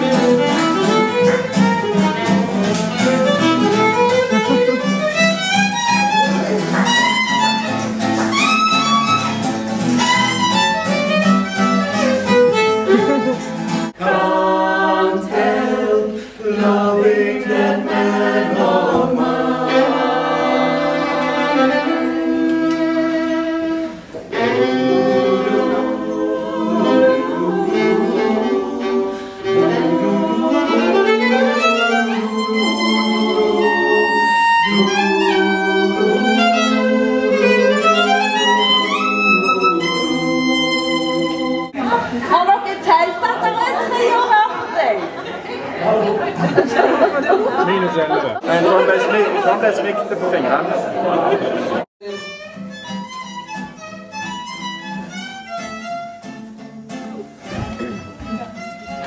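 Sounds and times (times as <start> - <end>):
fiddle playing a tune: 0.0 - 14.0, 17.7 - 41.8, 52.0 - 56.6, 57.4 - 59.0
acoustic guitar accompaniment: 0.0 - 47.7, 50.8 - 59.0
women singing together: 14.0 - 22.5, 24.4 - 45.0.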